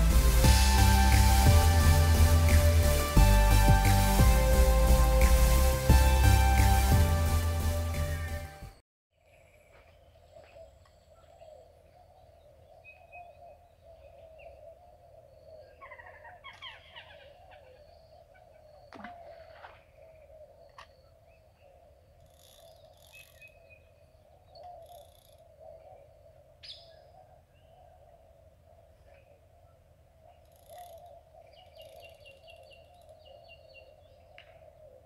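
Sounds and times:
steady low drone: 0.0s - 8.8s
birds chirping and calling: 10.3s - 29.4s.

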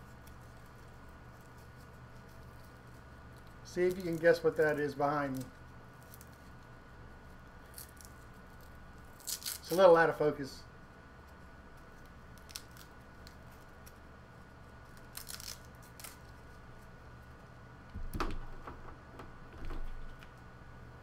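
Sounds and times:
faint steady hum: 0.0s - 21.0s
soft thump: 17.9s - 20.1s
cable clicks and rustles: 17.9s - 20.5s.

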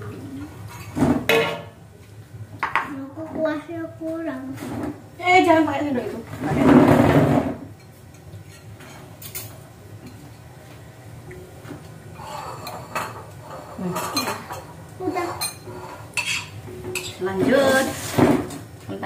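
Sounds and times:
spoons clinking on plates: 12.2s - 17.3s.

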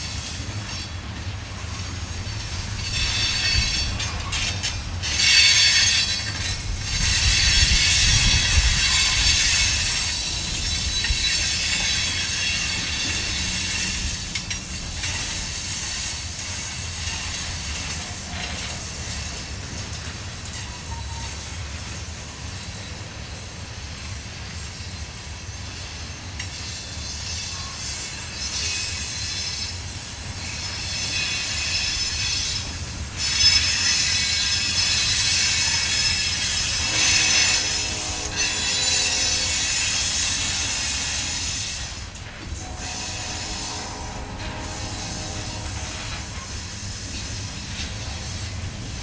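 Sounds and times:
wheels rumbling on rail: 0.0s - 49.0s
high-pitched wheel squeal: 33.2s - 41.8s, 42.6s - 46.8s.

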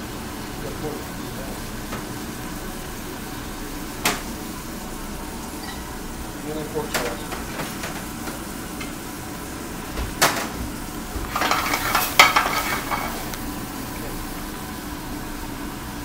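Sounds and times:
sizzling and clattering in pan: 0.4s - 15.1s
pan knocking: 11.3s - 13.2s.

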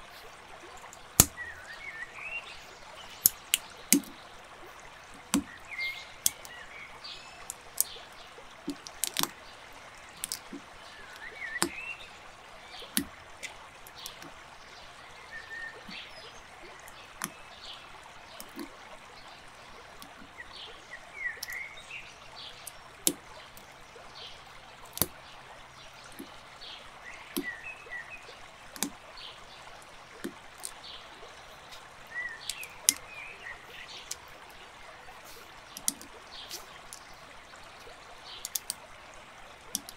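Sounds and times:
plastic bricks clicking: 8.6s - 9.4s, 10.1s - 11.8s, 35.8s - 36.1s, 38.4s - 38.8s
faint hiss: 30.8s - 38.6s.

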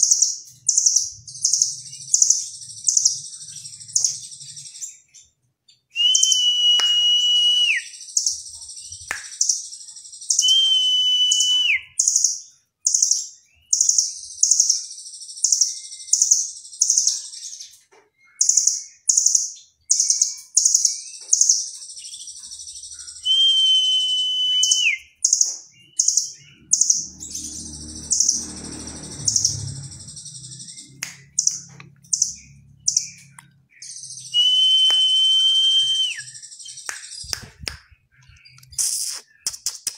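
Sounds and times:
bird long level whistle: 6.0s - 8.2s, 10.3s - 12.0s, 22.4s - 25.3s, 34.0s - 36.8s
bird sharp high chips: 38.5s - 39.9s.

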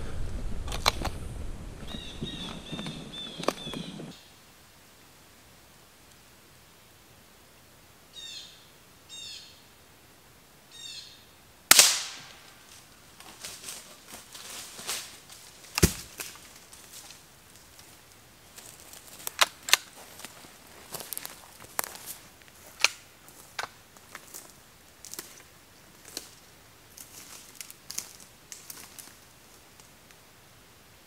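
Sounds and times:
bird chirps: 1.8s - 4.2s, 10.7s - 11.3s
suppressed rifle shot: 11.7s - 12.3s.

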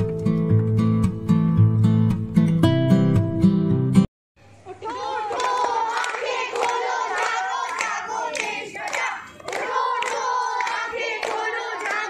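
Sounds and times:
hands clapping rhythmically: 4.8s - 12.0s
children singing in unison: 4.9s - 12.0s.

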